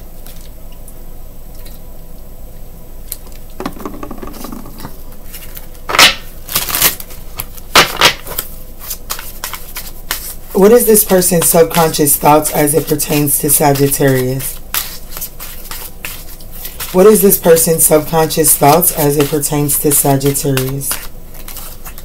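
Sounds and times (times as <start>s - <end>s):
cards being shuffled: 3.6s - 5.7s, 8.2s - 22.0s.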